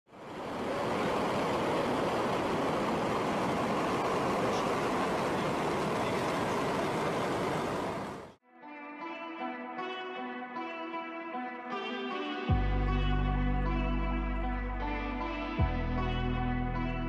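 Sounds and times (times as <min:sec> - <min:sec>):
rocket engines roaring: 0:00.1 - 0:08.4.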